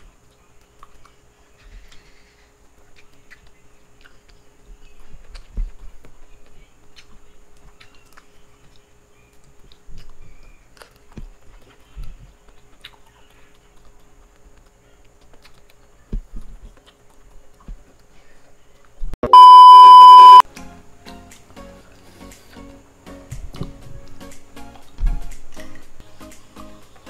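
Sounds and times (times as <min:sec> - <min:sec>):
eating sounds: 0:00.0 - 0:19.0, 0:23.4 - 0:27.0
clicks and smacks of fingers and mouth: 0:00.2 - 0:01.2, 0:02.7 - 0:18.1
high test-tone beep: 0:19.2 - 0:20.4.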